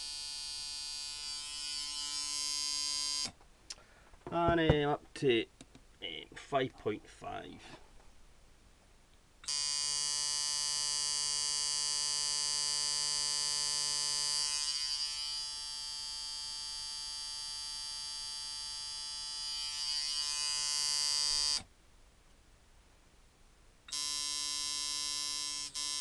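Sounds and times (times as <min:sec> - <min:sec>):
tattoo machine buzzing: 0:00.0 - 0:03.3, 0:09.5 - 0:21.7, 0:23.9 - 0:26.0.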